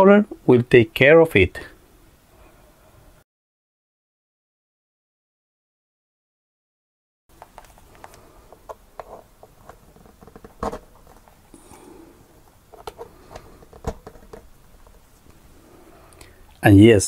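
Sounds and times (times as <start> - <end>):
plastic handling clicks and rustle: 7.3 - 11.7, 12.4 - 15.4.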